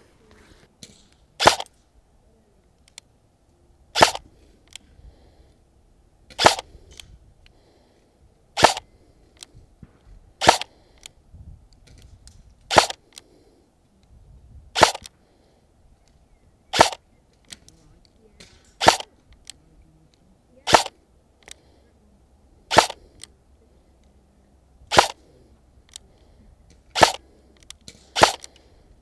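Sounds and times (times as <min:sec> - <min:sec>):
airsoft rifle shots: 0:00.8 - 0:01.8, 0:03.9 - 0:04.3, 0:06.3 - 0:06.8, 0:08.6 - 0:08.9, 0:09.8 - 0:10.9, 0:12.7 - 0:13.1, 0:14.7 - 0:15.1, 0:16.7 - 0:17.6, 0:18.4 - 0:19.2, 0:20.6 - 0:21.0, 0:22.7 - 0:23.2, 0:24.9 - 0:25.3, 0:26.9 - 0:28.6.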